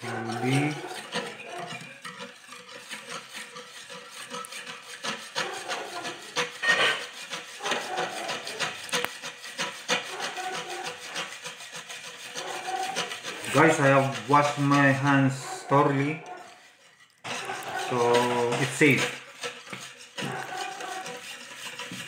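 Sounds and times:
knife scraping mango seeds: 0.0s - 22.0s.

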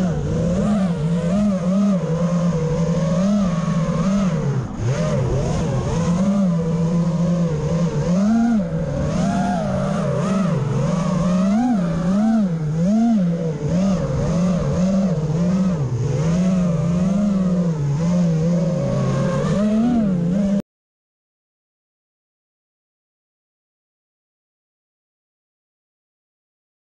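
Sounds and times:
quadcopter motors whining: 0.0s - 20.6s.

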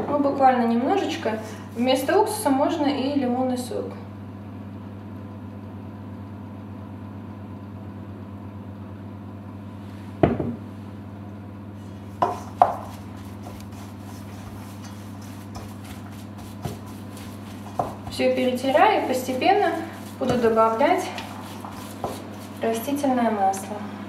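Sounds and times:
steady low hum: 7.3s - 24.0s
wooden spoon stirring in metal bowl: 11.8s - 23.8s.

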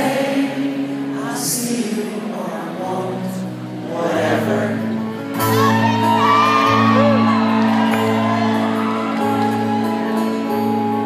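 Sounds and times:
acoustic guitar strumming: 0.0s - 11.0s
audience whooping and whistling: 5.4s - 11.0s.

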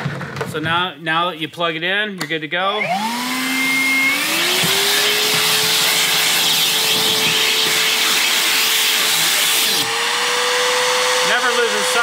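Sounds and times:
shop vacuum running: 2.7s - 12.0s.

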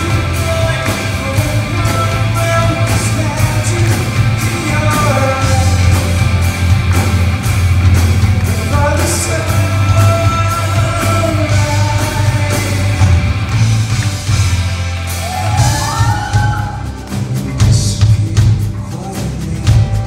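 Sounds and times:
person singing: 0.0s - 6.2s, 8.4s - 13.2s
live rock band: 0.0s - 20.0s.

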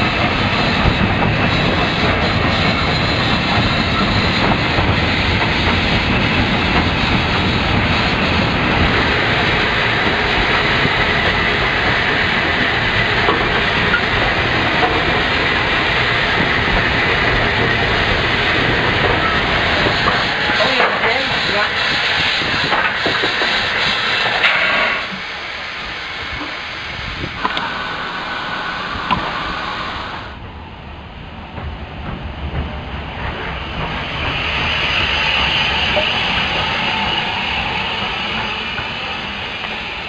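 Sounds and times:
wheels clattering on rails: 0.0s - 21.6s
steam hissing: 0.0s - 30.4s, 33.2s - 40.0s.

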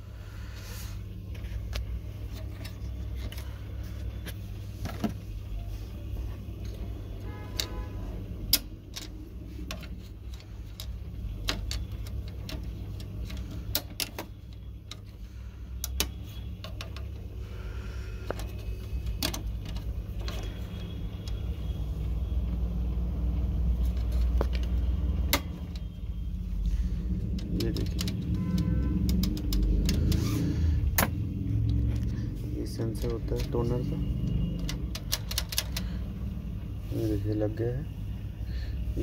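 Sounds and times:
plastic parts clicking: 8.5s - 17.3s, 18.2s - 21.4s, 27.3s - 30.2s, 34.5s - 36.0s.

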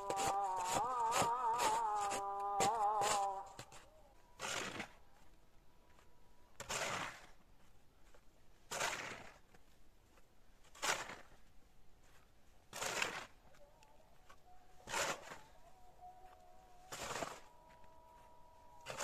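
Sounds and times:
heavy crunches in snow: 6.0s - 13.4s.

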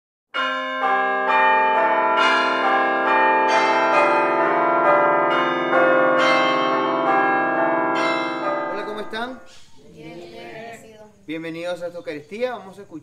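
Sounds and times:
church bells pealing: 0.4s - 9.5s.

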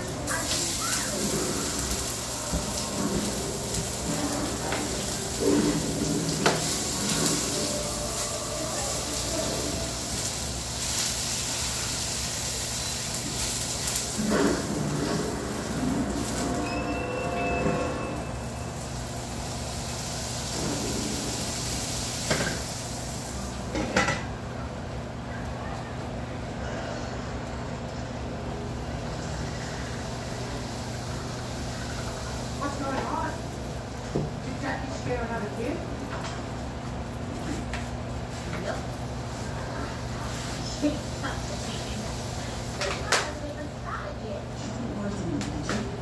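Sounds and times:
food sizzling in a pan: 0.0s - 24.2s, 28.7s - 34.9s, 38.2s - 44.2s.

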